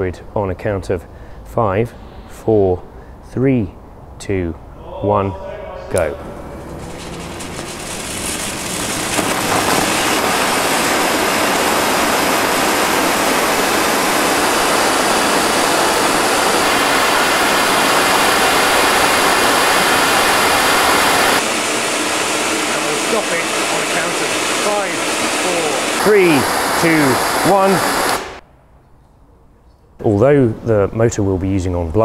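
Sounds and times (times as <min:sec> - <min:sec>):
rocket motor exhaust roar: 0:06.0 - 0:28.4.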